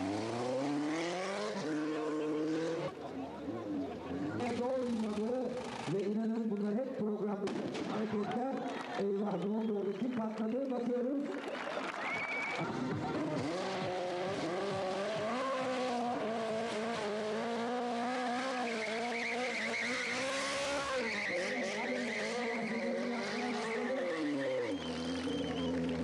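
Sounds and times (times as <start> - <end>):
motorcycle engine revving: 0.0 - 6.1, 12.6 - 26.0
tyre squealing on asphalt: 12.0 - 26.0.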